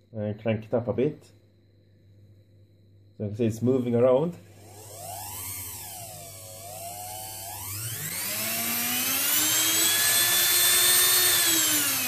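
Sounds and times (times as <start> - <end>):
motor fan hiss: 3.4 - 12.0
hand mixer motor whine: 4.4 - 12.0.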